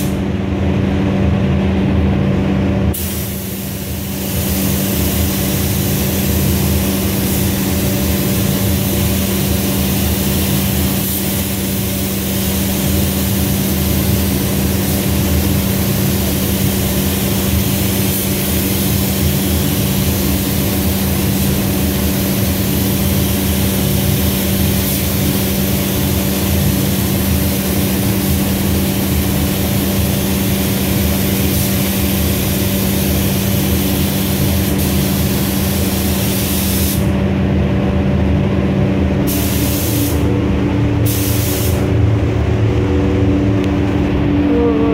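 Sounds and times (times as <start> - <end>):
low machine drone: 0.0 - 18.0, 37.0 - 44.9
spray gun hissing: 2.9 - 37.1, 39.3 - 40.3, 41.0 - 41.9.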